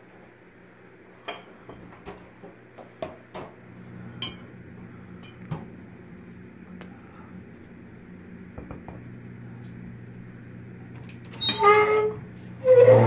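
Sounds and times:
steady low hum: 0:00.0 - 0:13.0
tableware clinking: 0:04.2 - 0:04.5.

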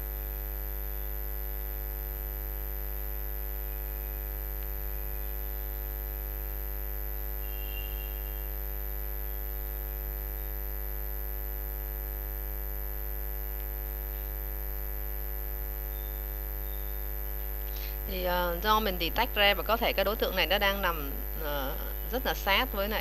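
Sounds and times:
electrical mains hum: 0:00.0 - 0:23.0
high-pitched whine: 0:07.2 - 0:10.6, 0:15.7 - 0:23.0.

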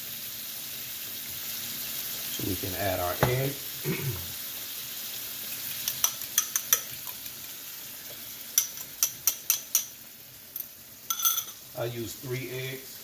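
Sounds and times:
food sizzling in hot oil: 0:00.0 - 0:13.0.

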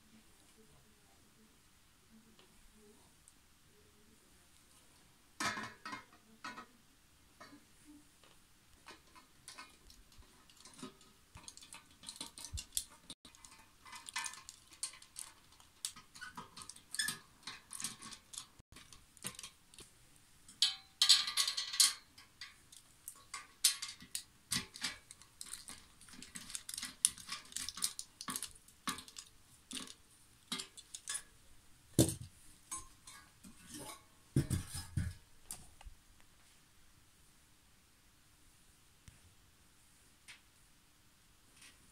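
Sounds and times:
metal frame clatter: 0:20.5 - 0:31.3.

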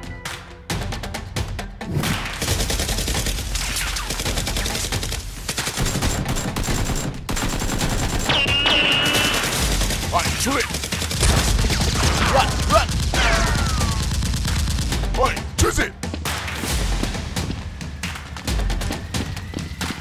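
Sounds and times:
rapid automatic gunfire: 0:02.1 - 0:15.4.

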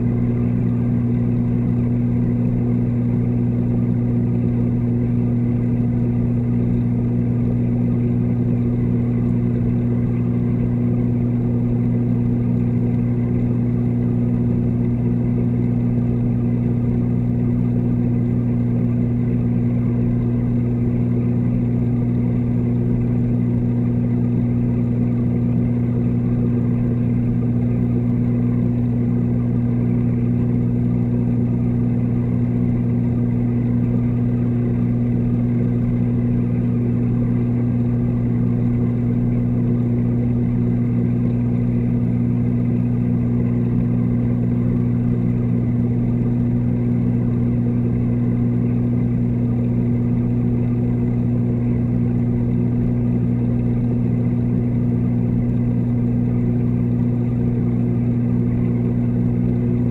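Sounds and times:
aquarium pumps humming underwater: 0:00.0 - 0:59.9.

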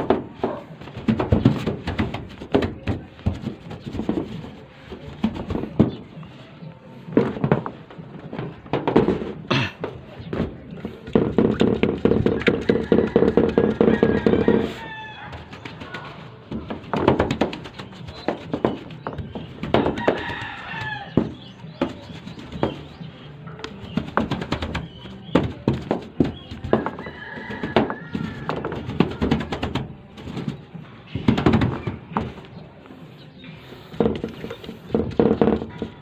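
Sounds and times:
paint roller on metal roof: 0:00.0 - 0:36.0
rooster crowing: 0:12.6 - 0:15.6, 0:20.0 - 0:21.2, 0:26.9 - 0:28.8.

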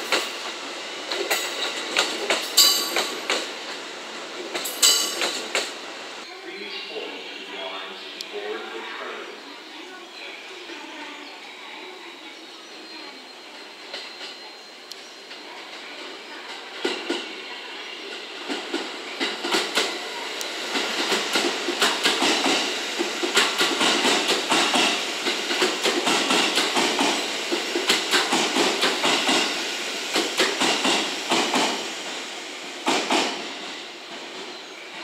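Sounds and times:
train wheels clacking over rail joints: 0:00.0 - 0:00.5, 0:01.1 - 0:03.8, 0:04.4 - 0:05.8, 0:18.4 - 0:20.0, 0:20.7 - 0:32.2, 0:32.8 - 0:33.7.

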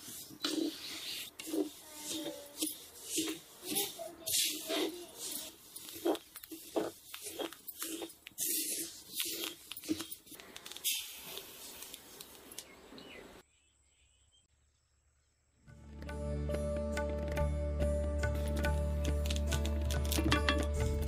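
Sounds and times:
rustling and crackling in grass: 0:01.2 - 0:12.7.

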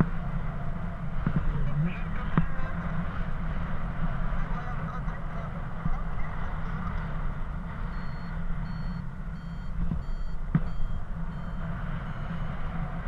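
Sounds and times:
short high beeps: 0:07.9 - 0:12.6.

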